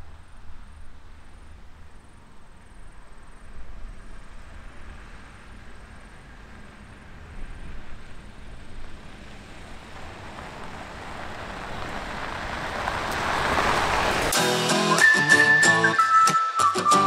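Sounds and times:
vehicle engine rumble: 0.0 - 14.4
tyres on gravel: 4.2 - 16.2.

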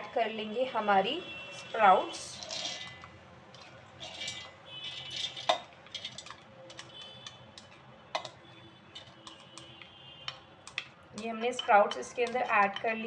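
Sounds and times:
spatula scraping glass bowl: 2.1 - 8.3
sprouts rattling into metal jar: 2.3 - 3.0, 4.0 - 7.0.

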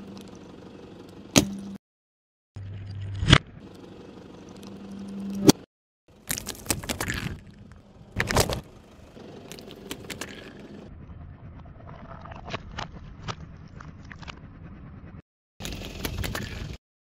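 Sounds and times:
slow car rumble: 0.0 - 1.8, 6.7 - 16.8
jelly crackles and squelches: 6.1 - 8.7, 9.4 - 10.8, 15.6 - 16.8
plastic cup cracking: 6.2 - 7.5.

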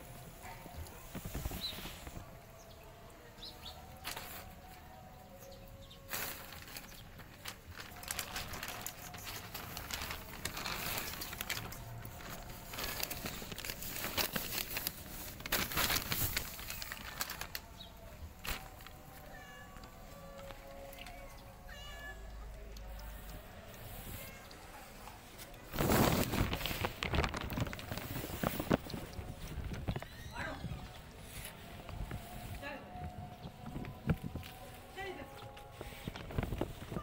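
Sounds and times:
plastic sheet rustling and flapping: 1.0 - 2.4, 6.0 - 19.2, 24.9 - 37.0.

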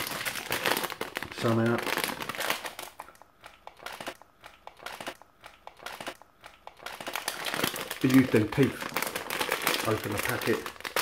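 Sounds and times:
plastic packet crinkling: 0.0 - 3.2, 6.8 - 11.0.

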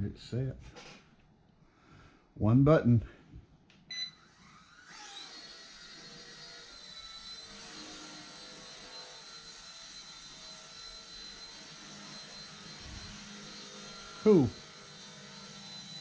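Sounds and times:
short beep: 3.9 - 4.2
toy helicopter rotor whirring: 4.2 - 16.0.

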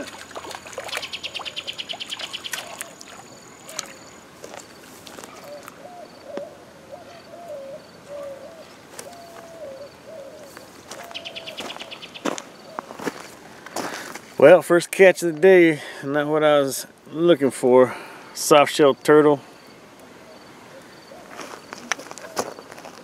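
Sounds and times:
bird whistling low notes: 7.2 - 12.2.

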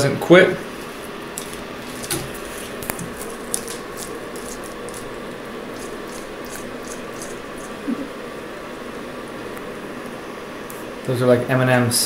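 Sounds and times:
steady background hiss: 0.0 - 12.0
lizard jaws crunching: 1.4 - 7.8.

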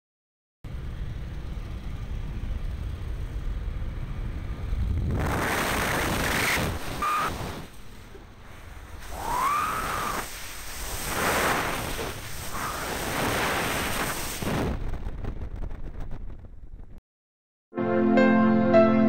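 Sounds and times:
small aircraft engine drone: 0.7 - 13.7
wind on microphone: 4.7 - 7.7, 8.9 - 17.0.

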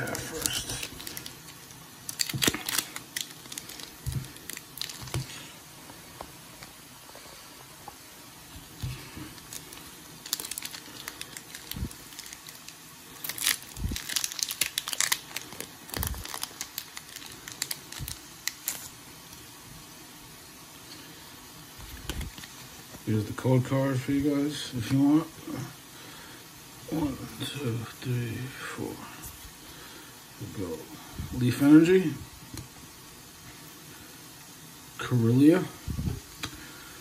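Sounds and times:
foil wrapper tearing and crinkling: 0.0 - 5.5, 8.8 - 19.4, 21.8 - 22.8.

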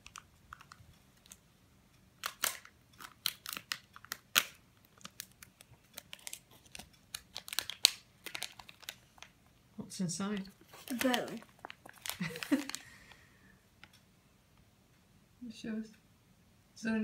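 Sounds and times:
plastic packet crinkling and tearing: 2.2 - 9.4, 10.6 - 13.0.

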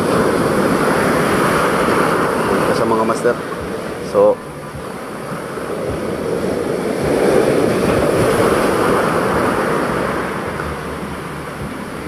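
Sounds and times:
surf washing in: 0.0 - 12.0.

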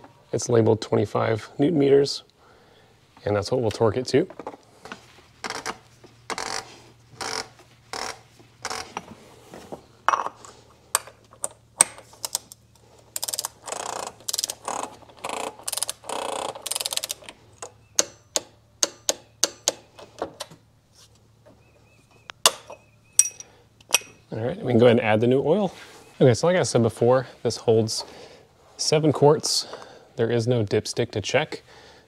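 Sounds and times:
torque wrench ratcheting: 5.4 - 9.0, 11.8 - 17.3
torque wrench sharp clicks: 13.2 - 17.2.

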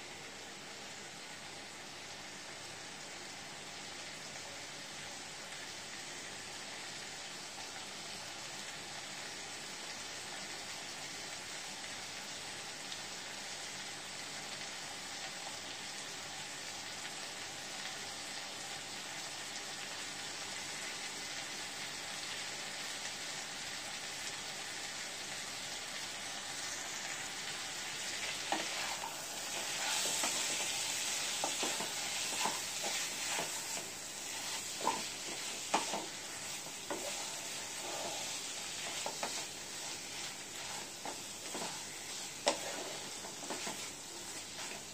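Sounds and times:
meat sizzling in a wok: 0.0 - 44.9
wooden spatula scraping pan: 28.2 - 44.9.

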